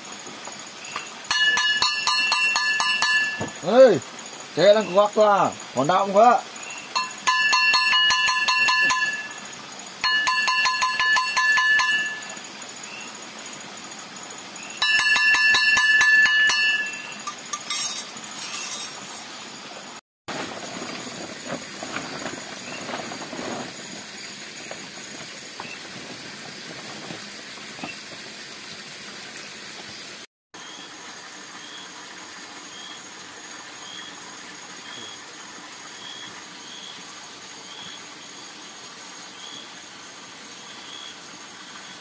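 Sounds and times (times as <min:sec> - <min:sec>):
insects hissing: 0:00.0 - 0:42.0
rustling and clattering: 0:17.2 - 0:19.3, 0:20.3 - 0:28.2.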